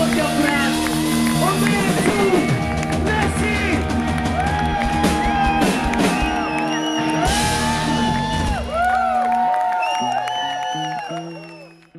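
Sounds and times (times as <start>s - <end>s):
pitch-bending lead guitar notes: 0.0s - 11.9s
rock band playing: 0.0s - 11.9s.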